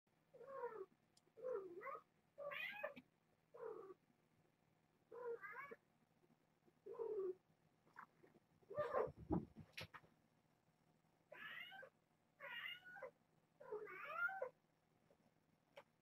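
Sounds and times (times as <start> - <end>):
cat meowing: 0.4 - 3.0, 11.3 - 14.5.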